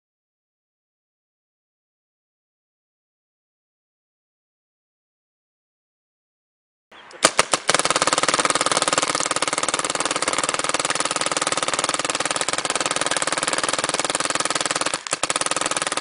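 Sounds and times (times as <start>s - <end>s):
paintball marker firing: 7.2s - 16.0s.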